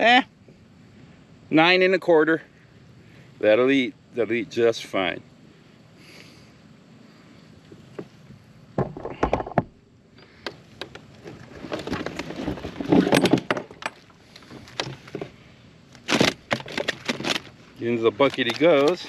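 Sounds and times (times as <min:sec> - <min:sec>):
rustling and scraping: 0:07.2 - 0:19.0.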